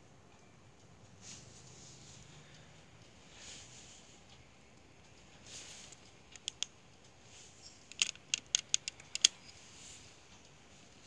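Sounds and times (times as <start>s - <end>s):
small sharp clicks: 5.9s - 7.2s, 7.8s - 9.6s.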